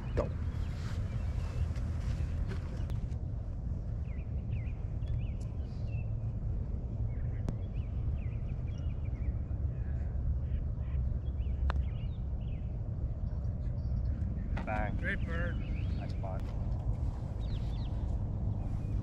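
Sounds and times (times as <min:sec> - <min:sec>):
low rumble: 0:00.0 - 0:19.0
small birds chirping: 0:07.0 - 0:19.0.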